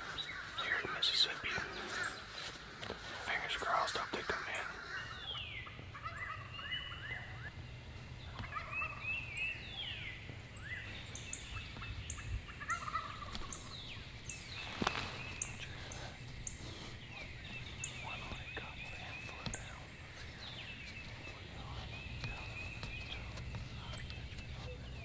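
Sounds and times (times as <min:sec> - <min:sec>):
songbirds chirping: 0:00.0 - 0:25.0
wild turkey gobbling: 0:04.2 - 0:07.5, 0:08.2 - 0:09.2, 0:11.4 - 0:14.0.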